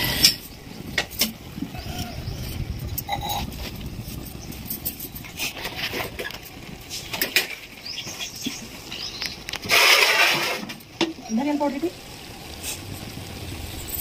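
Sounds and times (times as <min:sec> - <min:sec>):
loud rustling burst: 0:09.5 - 0:11.0.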